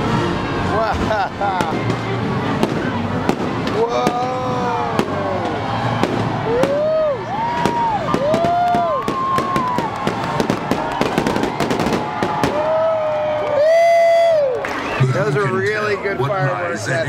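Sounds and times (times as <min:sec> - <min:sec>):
fireworks bangs and crackles: 0:00.0 - 0:13.4
pitched whistling fireworks: 0:01.5 - 0:13.0.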